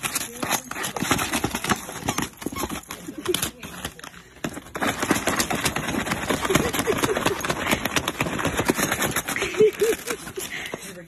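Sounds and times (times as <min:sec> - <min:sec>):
wrapping paper crinkling and tearing: 0:00.0 - 0:11.0.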